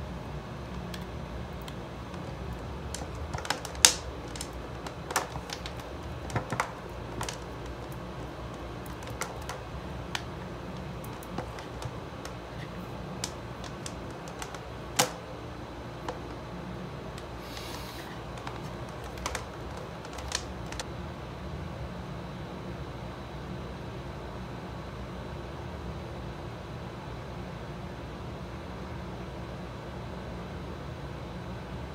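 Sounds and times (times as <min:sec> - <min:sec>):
steady low hum: 0:00.0 - 0:25.8
plastic clicks and taps: 0:00.8 - 0:15.2, 0:18.0 - 0:20.8.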